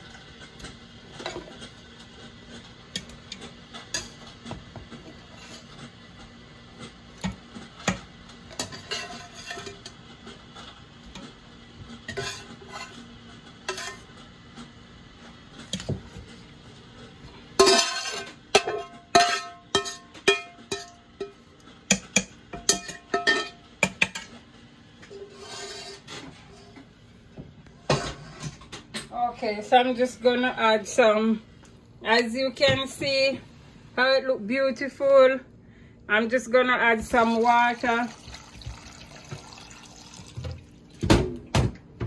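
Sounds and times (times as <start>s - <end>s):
metal spatula scraping pots: 4.9s - 6.0s, 8.5s - 10.0s, 12.0s - 14.1s, 17.6s - 24.3s, 25.0s - 26.8s, 27.8s - 28.7s.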